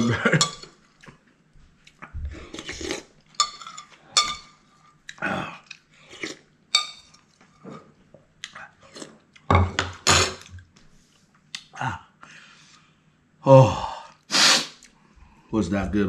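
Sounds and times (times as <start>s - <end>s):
man chewing food: 0.6s - 9.5s
spoon clinking against bowl: 3.4s - 4.6s, 6.7s - 7.2s.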